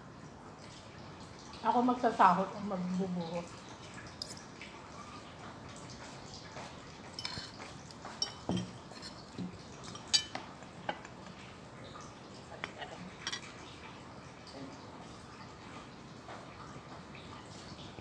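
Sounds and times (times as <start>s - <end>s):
cutlery scraping on ceramic plate: 7.2s - 11.0s
glass dish knocking on table: 8.2s - 8.8s.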